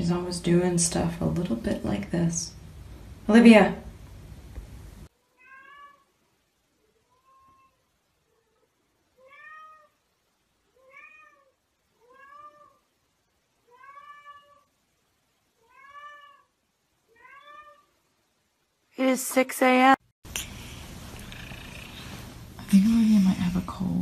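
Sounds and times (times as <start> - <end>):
cat meowing: 5.2 - 6.1, 6.9 - 7.8, 9.2 - 10.0, 10.7 - 12.8, 13.6 - 14.7, 15.6 - 17.9.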